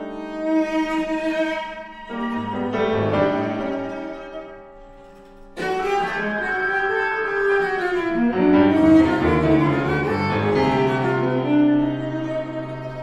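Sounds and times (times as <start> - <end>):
cello bowed hard: 0.0 - 13.0
grand piano: 0.0 - 13.0.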